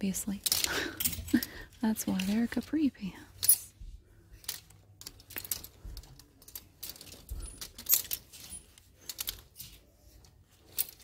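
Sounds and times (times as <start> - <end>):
hangers clicking on clothing rack: 0.2 - 3.8, 4.4 - 11.0.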